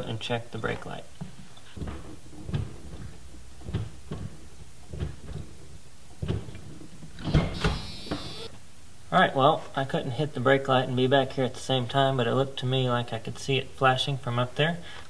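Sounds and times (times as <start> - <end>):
clunks: 1.7 - 8.5
knocks and bumps in vehicle: 1.8 - 8.3.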